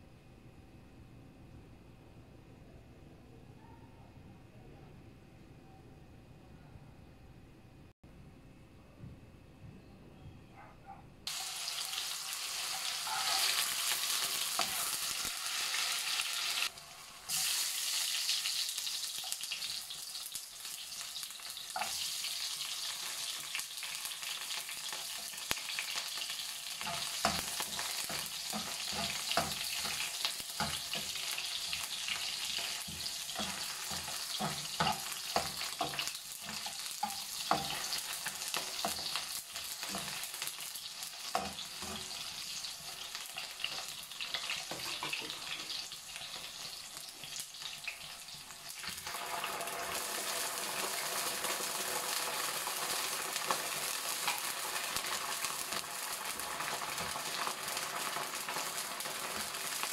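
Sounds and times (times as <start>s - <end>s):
onion sizzling in hot oil: 11.3s - 59.9s
spatula scraping a pan: 26.7s - 40.4s, 41.2s - 46.6s.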